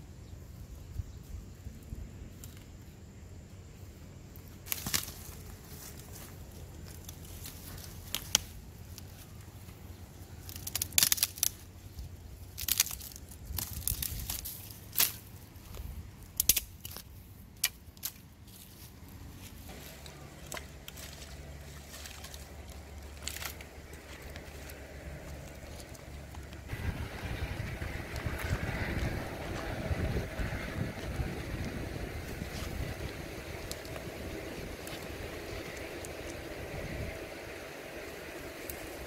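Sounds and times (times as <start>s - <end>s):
wooden sticks snapping: 4.7s - 5.5s, 6.9s - 9.1s, 10.4s - 11.7s, 12.4s - 15.3s, 16.2s - 18.6s, 20.0s - 26.7s
steady low hum: 14.7s - 39.0s
rustling: 18.0s - 36.5s.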